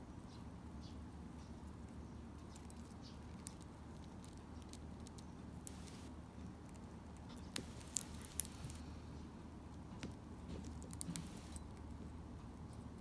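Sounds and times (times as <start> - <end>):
low steady hum: 0.0 - 13.0
bird cracking seeds: 2.5 - 8.9, 10.6 - 11.7.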